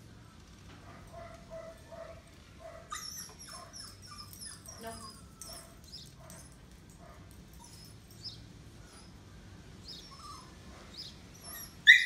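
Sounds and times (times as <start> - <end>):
distant dogs yelping and barking: 0.8 - 12.0.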